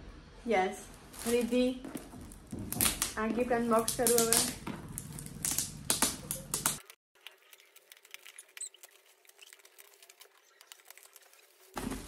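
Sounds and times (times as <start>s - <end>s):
wrapping paper tearing and crinkling: 3.8s - 12.0s.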